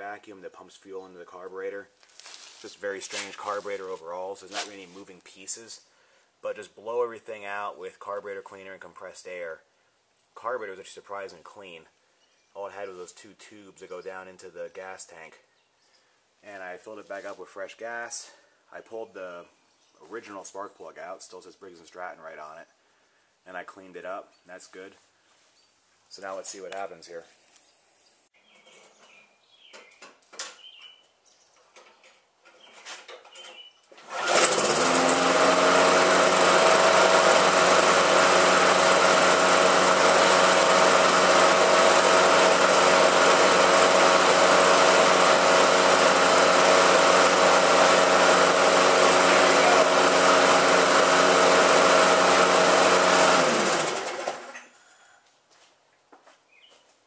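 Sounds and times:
lawn mower engine running: 34.0 - 54.7.

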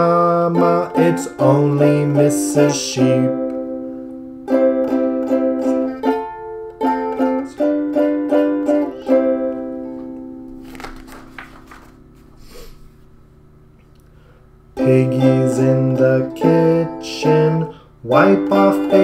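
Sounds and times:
plucked string instrument tune: 0.0 - 12.3, 14.8 - 19.0
book page turning: 10.5 - 13.0.

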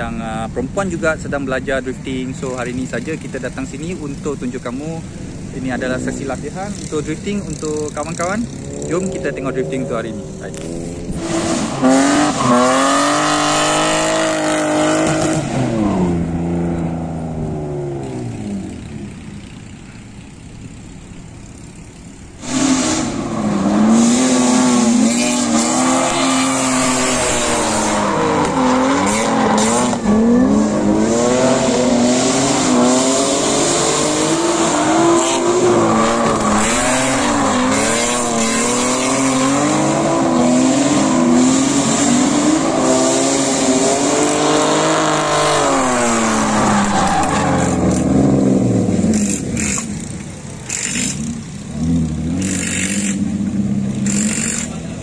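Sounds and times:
car engines revving: 0.0 - 55.0
tyre squeal: 34.5 - 39.6, 45.4 - 48.1.

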